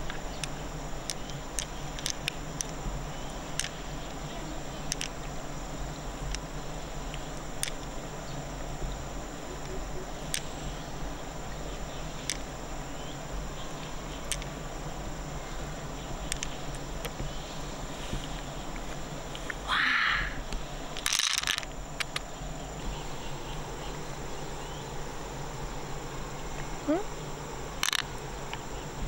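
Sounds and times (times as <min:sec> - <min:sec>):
insect chirring: 0:00.0 - 0:29.0
sharp clicks: 0:21.0 - 0:22.3.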